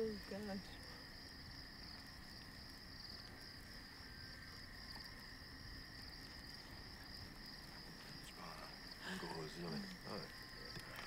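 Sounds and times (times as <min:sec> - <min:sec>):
crickets chirping: 0:00.0 - 0:11.0
low insect tone: 0:00.0 - 0:11.0.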